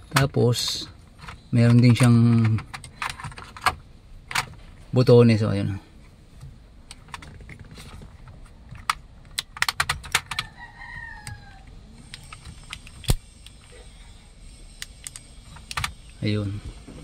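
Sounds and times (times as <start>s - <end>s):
plastic switch clicks and rattles: 8.7s - 10.5s.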